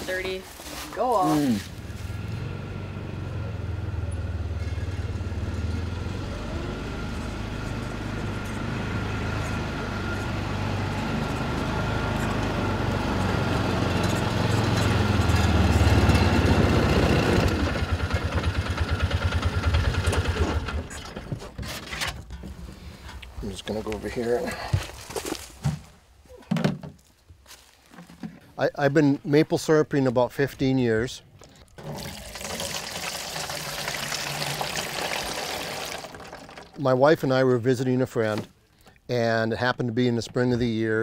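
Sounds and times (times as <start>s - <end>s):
small vehicle engine running: 1.4s - 21.4s
plastic jugs knocking: 26.4s - 27.0s.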